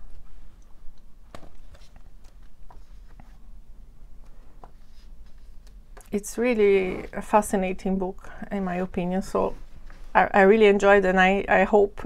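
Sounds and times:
low steady hum: 0:00.0 - 0:12.0
paper pages rustling: 0:01.3 - 0:03.5, 0:04.2 - 0:07.3.

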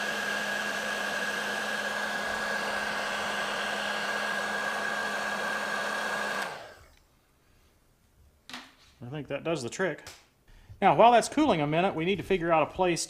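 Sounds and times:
heat gun blowing air: 0:00.0 - 0:07.0.

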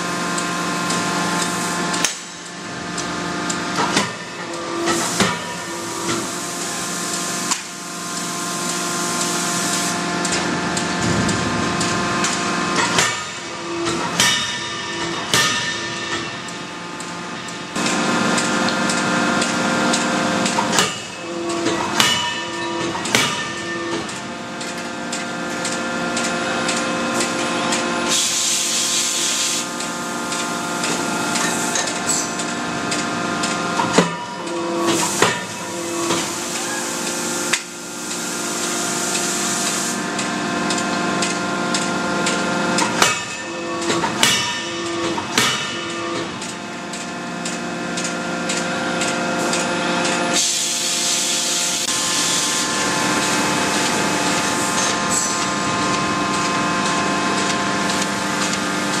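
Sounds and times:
machinery hum with held tones: 0:00.0 - 0:59.0
forging hammer blows on metal: 0:12.7 - 0:16.6, 0:20.8 - 0:24.2, 0:43.0 - 0:46.3.

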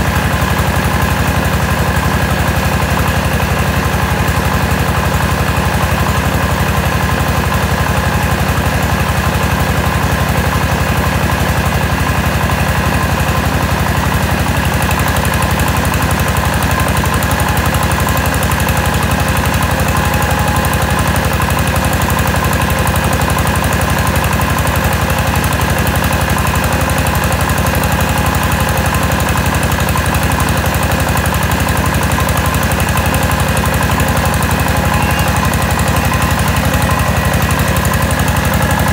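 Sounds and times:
rice mill machinery running: 0:00.0 - 0:38.9.

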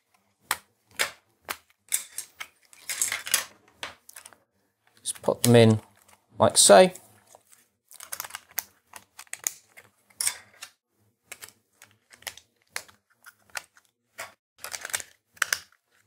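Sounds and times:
plastic parts clicking: 0:11.3 - 0:16.0.

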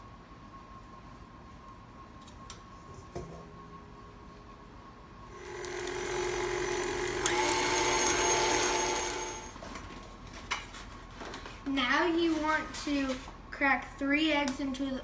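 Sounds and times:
stand mixer motor whining: 0:05.4 - 0:09.6.

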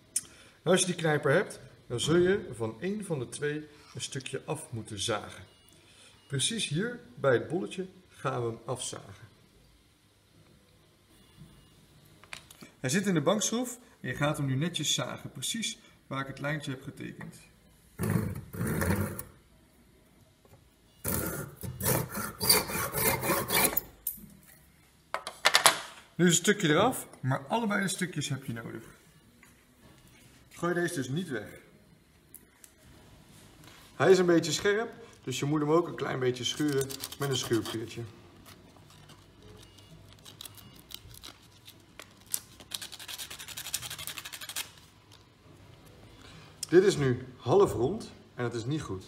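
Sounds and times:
hand saw cutting wood: 0:21.1 - 0:23.8
sandpaper rasping on wood: 0:21.8 - 0:23.8.

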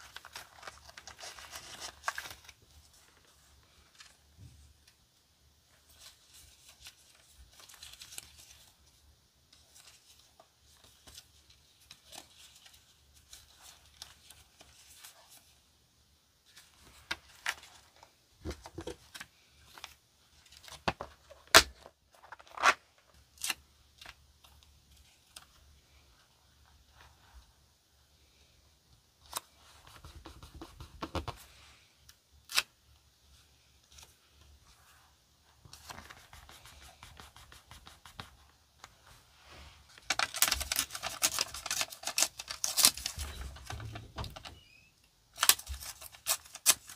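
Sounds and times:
paper crackling and tearing: 0:00.0 - 0:04.2, 0:39.9 - 0:43.9, 0:45.3 - 0:46.9
paper stickers rustling: 0:00.0 - 0:04.2, 0:39.9 - 0:44.6.

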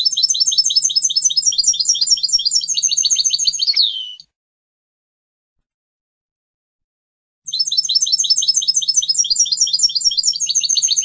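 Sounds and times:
bird twittering song: 0:00.0 - 0:04.4, 0:07.5 - 0:11.0.

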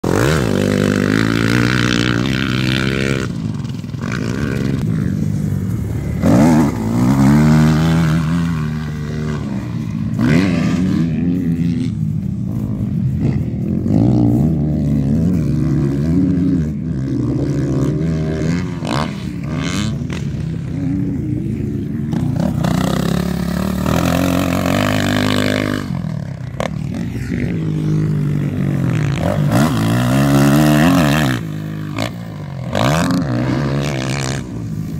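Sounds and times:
dirt bike engines revving: 0:00.0 - 0:34.9.

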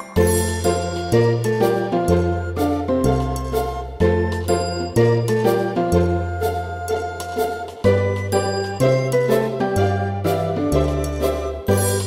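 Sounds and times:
bright melody of struck notes: 0:00.0 - 0:03.6.

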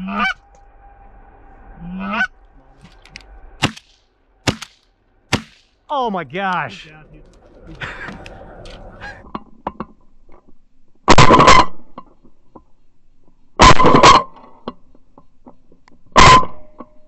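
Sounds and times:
shotgun shots: 0:03.6 - 0:05.7.

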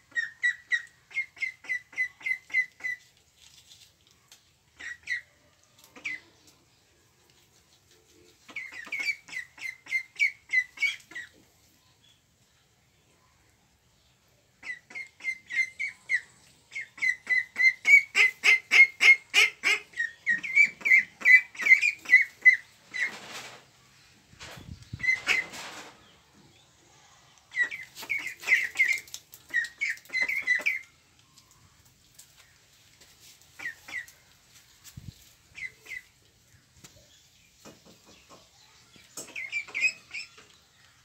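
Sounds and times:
ducklings peeping: 0:00.1 - 0:03.1, 0:04.7 - 0:11.4, 0:14.6 - 0:23.2, 0:24.8 - 0:25.6, 0:27.4 - 0:31.8, 0:33.4 - 0:34.3, 0:35.4 - 0:41.0
rustling: 0:02.9 - 0:04.7, 0:21.6 - 0:26.2, 0:31.2 - 0:37.1.

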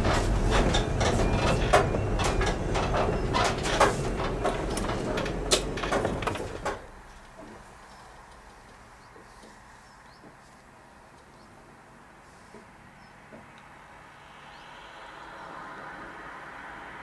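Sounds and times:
rattles and knocks: 0:00.0 - 0:07.6
car road and engine rumble: 0:00.0 - 0:09.9.

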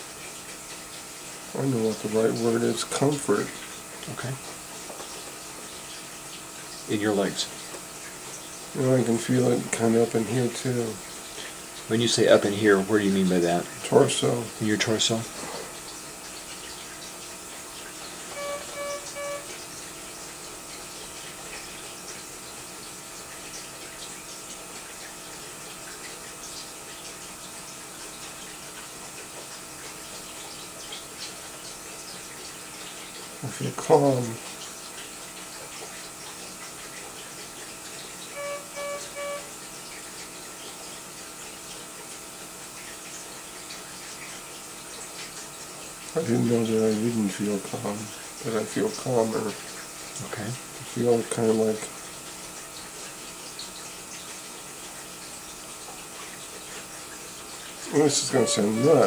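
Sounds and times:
monitor electronic beeps: 0:18.3 - 0:19.6, 0:38.4 - 0:39.5, 0:57.9 - 0:59.0.

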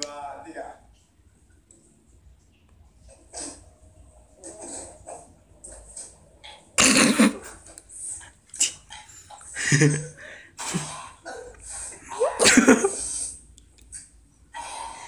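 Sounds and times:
people coughing and spluttering: 0:06.8 - 0:07.8, 0:12.0 - 0:13.2.

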